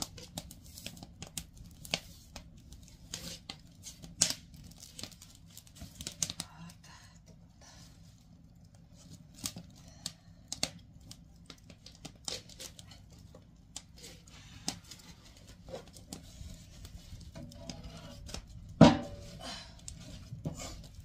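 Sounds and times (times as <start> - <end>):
wood fire crackling and popping: 0.0 - 21.0
low steady rumble: 0.3 - 12.2.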